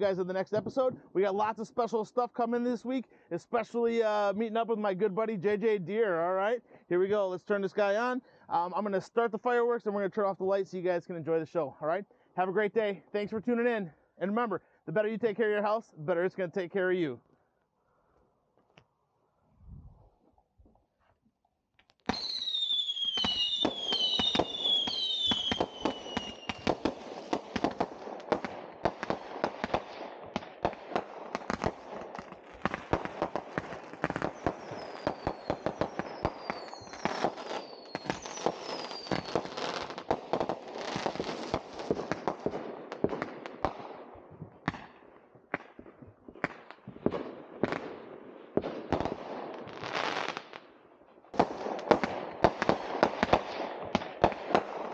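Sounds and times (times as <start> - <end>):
firework pops and bangs: 21.8 - 50.6, 51.3 - 54.9
whistling firework shots: 22.0 - 43.8.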